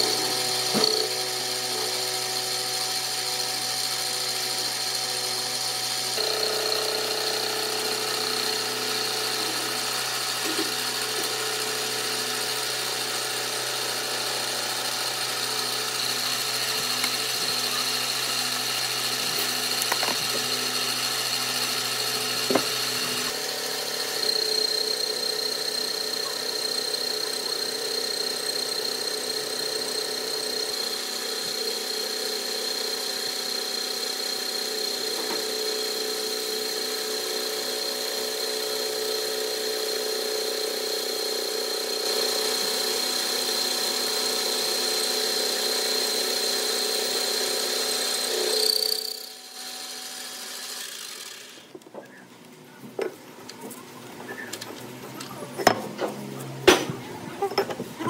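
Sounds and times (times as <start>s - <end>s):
power tool whining: 0.0s - 52.2s, 52.8s - 58.0s.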